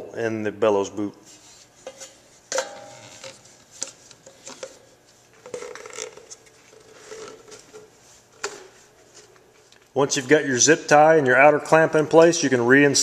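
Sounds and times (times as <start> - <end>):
metal clink: 2.5 - 3.1.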